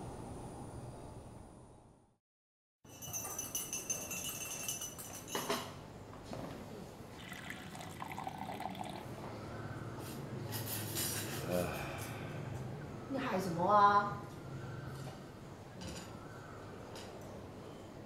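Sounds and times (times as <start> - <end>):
water running and pouring: 7.2 - 9.1.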